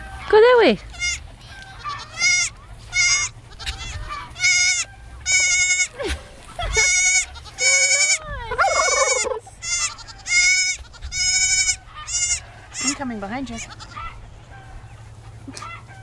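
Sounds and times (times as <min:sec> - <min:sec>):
baby goat bleating: 0:00.9 - 0:06.0, 0:06.6 - 0:13.0, 0:13.6 - 0:14.2.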